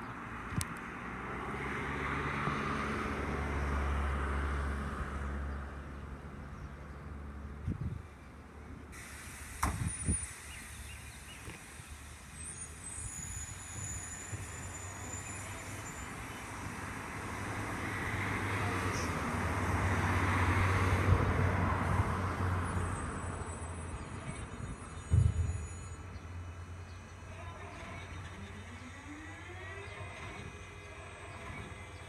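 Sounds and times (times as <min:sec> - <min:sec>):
car driving past: 0:00.9 - 0:06.4, 0:16.4 - 0:24.2.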